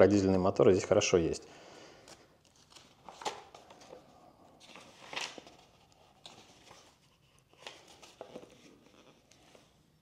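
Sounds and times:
book pages turning: 2.0 - 9.8.

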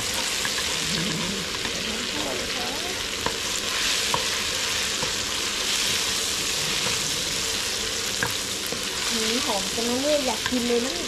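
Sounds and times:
chilies sizzling in hot oil: 0.0 - 11.0.

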